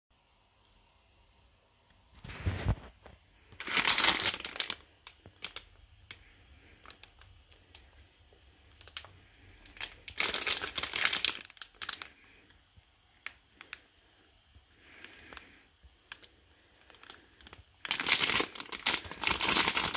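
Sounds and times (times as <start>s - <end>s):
plastic bag crinkling: 2.2s - 8.0s, 8.7s - 12.4s, 14.8s - 19.9s.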